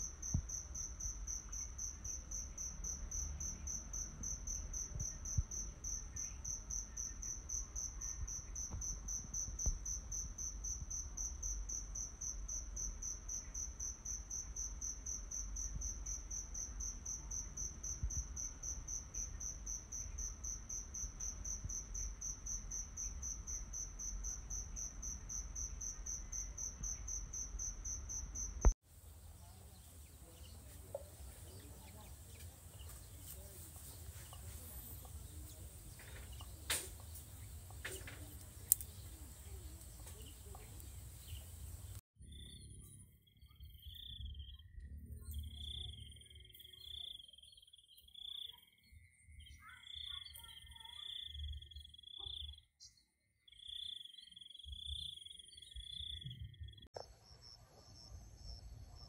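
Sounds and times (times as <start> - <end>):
insects trilling: 0.0 - 42.0
faint outdoor ambience: 0.0 - 52.6, 54.6 - 59.0.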